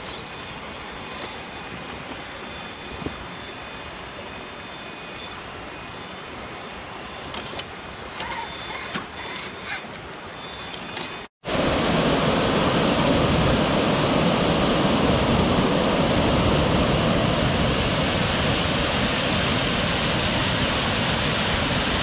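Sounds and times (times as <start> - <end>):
waterfall rushing into pool: 11.4 - 22.0.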